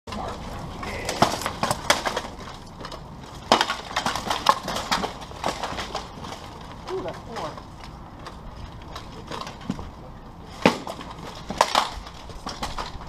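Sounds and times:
armour clanking: 0:00.1 - 0:09.8.

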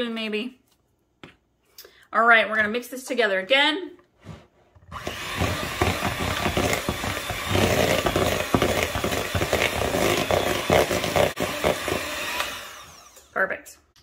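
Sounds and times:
electric hand mixer running: 0:04.9 - 0:13.4.

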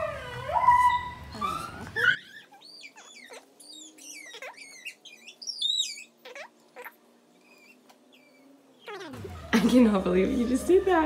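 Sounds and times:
marker squeaking on plastic: 0:01.3 - 0:09.4.

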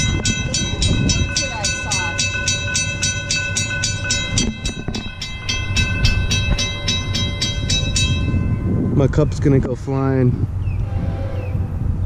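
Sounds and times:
crossing bell ringing: 0:00.0 - 0:09.6
freight train rumbling past: 0:00.0 - 0:12.0.

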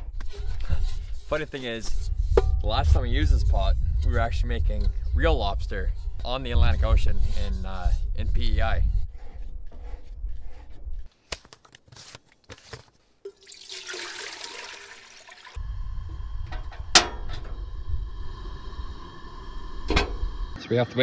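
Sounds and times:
water pouring into metal pot: 0:13.3 - 0:15.6.

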